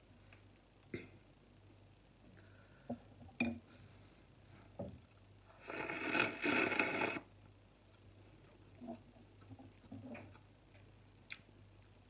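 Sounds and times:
noodles slurped: 5.6s - 7.3s.

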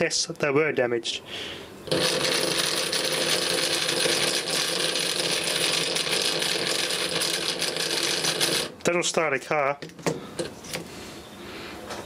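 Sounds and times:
small electric motor whirring: 1.9s - 8.7s.

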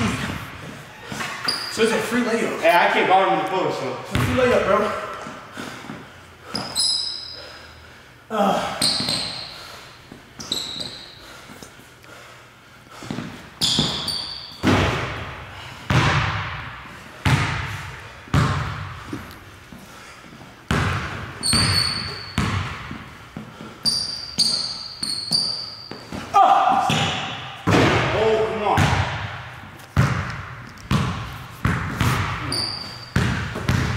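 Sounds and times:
sneaker squeaks: 0.8s - 2.0s, 6.5s - 7.6s, 8.8s - 11.5s, 13.0s - 14.7s, 21.4s - 27.2s, 30.8s - 33.9s
basketball bouncing on wood floor: 4.1s - 4.6s, 13.1s - 15.2s, 15.9s - 19.0s, 20.7s - 23.1s, 26.8s - 28.1s, 28.8s - 29.4s, 30.0s - 33.9s.

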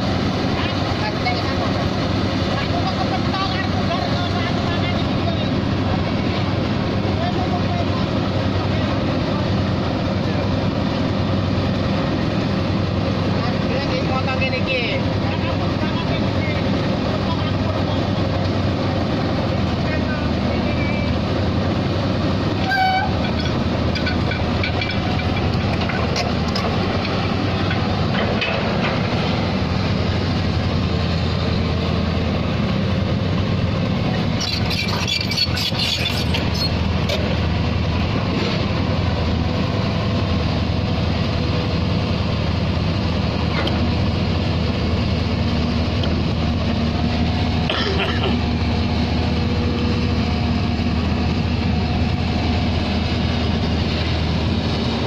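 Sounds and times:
diesel engine under load: 0.0s - 55.0s
excavator scraping and clatter: 15.0s - 41.9s.

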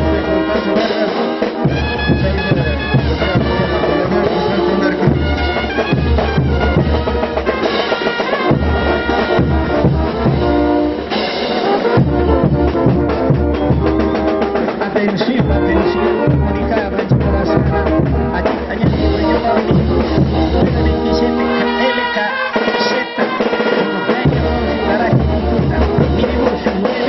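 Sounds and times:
bass drum beat: 0.0s - 21.5s, 24.2s - 27.0s
brass band dance tune: 0.0s - 27.0s.

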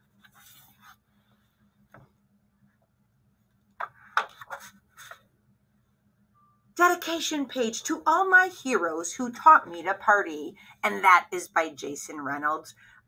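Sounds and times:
soft handling noises: 0.0s - 5.3s.

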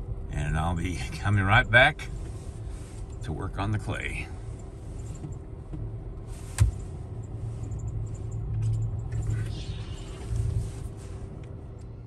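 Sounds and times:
car engine and road rumble: 0.0s - 12.0s
sharp thump: 6.6s - 6.8s.

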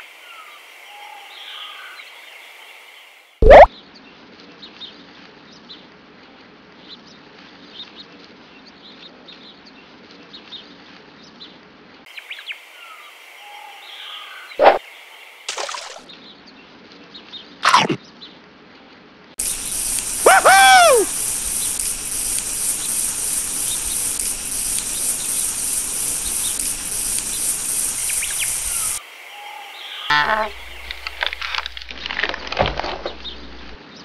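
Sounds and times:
steady background hum: 19.4s - 29.0s
small birds chirping: 19.4s - 32.0s, 33.0s - 34.0s.

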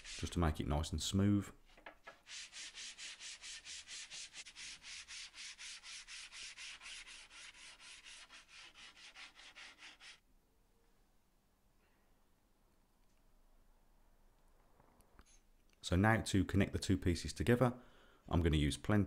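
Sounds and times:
sanding block on plywood: 0.0s - 0.4s, 2.1s - 10.2s.

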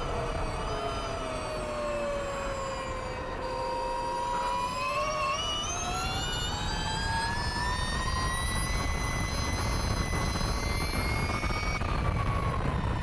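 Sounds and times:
electric motorcycle motor whine: 0.0s - 13.0s
wind rush: 7.1s - 13.0s.

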